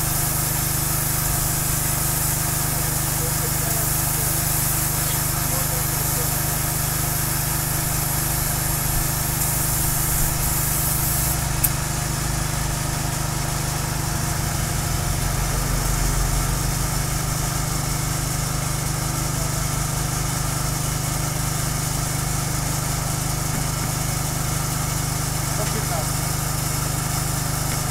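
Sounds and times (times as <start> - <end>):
hiss: 0.0 - 13.5
small petrol engine running: 0.0 - 27.9.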